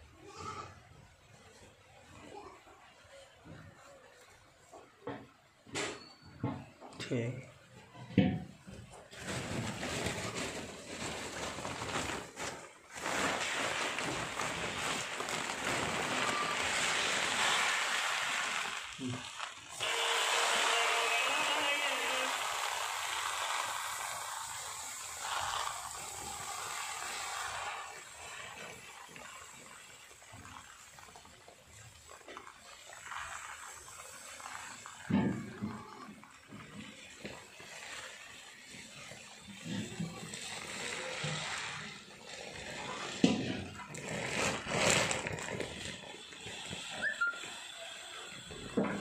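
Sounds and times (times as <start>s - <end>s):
dry grains rustling and sliding: 9.2s - 30.8s, 36.9s - 47.7s
granules pouring onto a heap: 9.2s - 49.0s.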